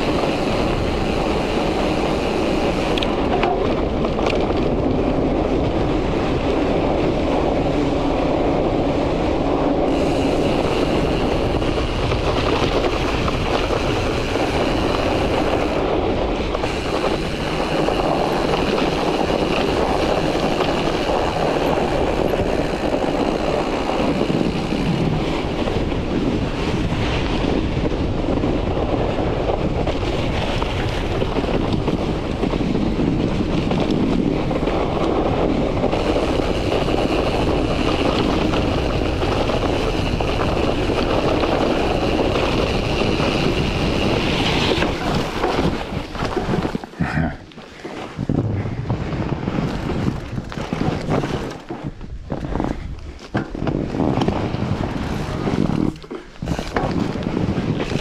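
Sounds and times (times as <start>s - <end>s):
bicycle tyres rolling on ice: 0.0s - 58.0s.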